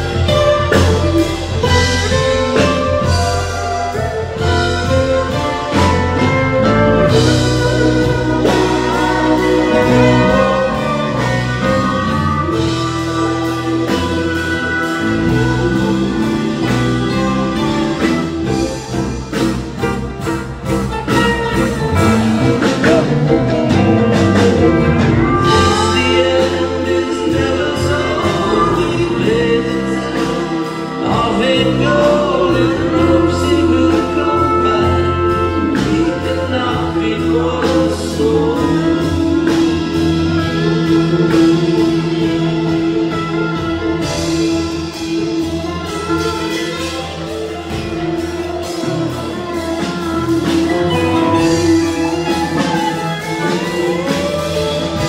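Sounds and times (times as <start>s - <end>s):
person singing lead vocal: 0.0s - 20.3s, 21.5s - 55.0s
electric guitar: 0.0s - 55.0s
pedal steel guitar gliding notes: 0.0s - 55.0s.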